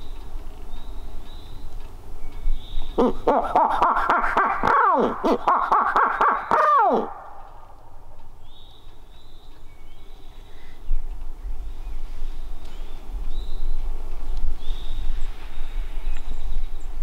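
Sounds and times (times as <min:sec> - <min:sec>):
owl hoot imitation: 0:03.0 - 0:07.4.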